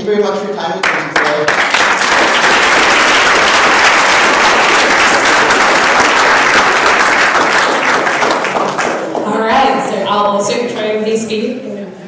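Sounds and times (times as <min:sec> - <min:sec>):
audience applauding: 0:00.8 - 0:09.4.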